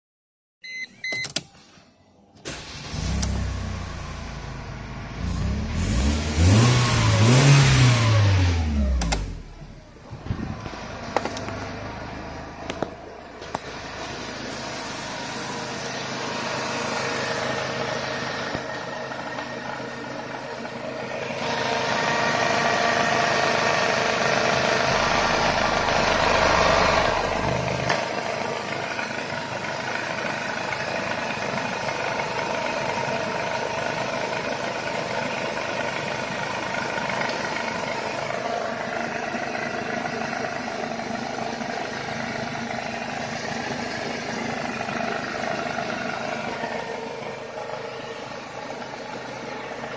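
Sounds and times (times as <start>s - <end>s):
car engine running: 2.5s - 49.9s.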